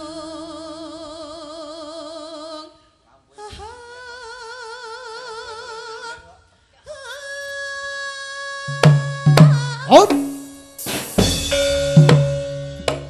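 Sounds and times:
woman singing unaccompanied: 0.0s - 6.3s, 6.9s - 10.7s.

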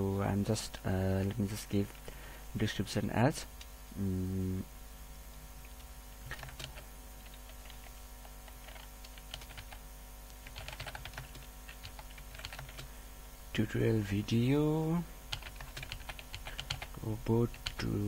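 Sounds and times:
computer keyboard typing: 5.8s - 9.8s, 10.4s - 12.9s, 15.3s - 17.9s.

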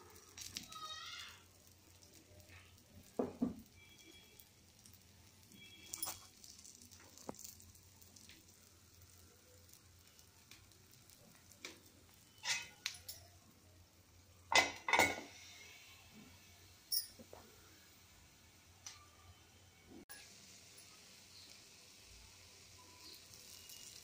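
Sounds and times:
batter sizzling in oil: 0.0s - 24.0s
glass lid clinking on pan: 14.5s - 15.3s.

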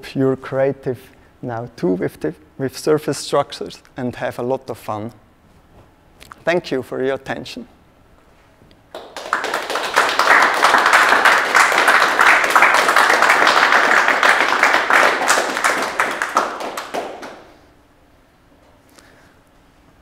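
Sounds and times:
audience applauding: 8.9s - 17.6s.

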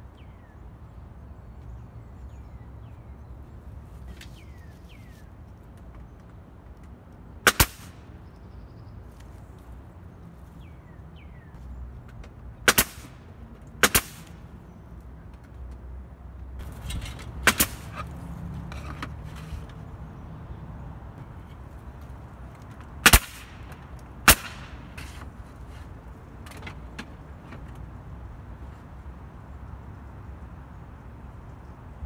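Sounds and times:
nail gun firing: 7.5s - 8.0s, 12.7s - 13.2s, 13.8s - 14.3s, 17.4s - 18.0s, 23.0s - 23.7s, 24.3s - 25.2s.

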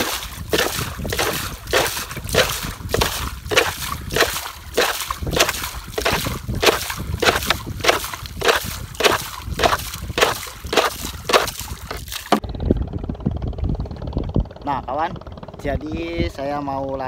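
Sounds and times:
water scooped and splashed: 0.0s - 12.4s.

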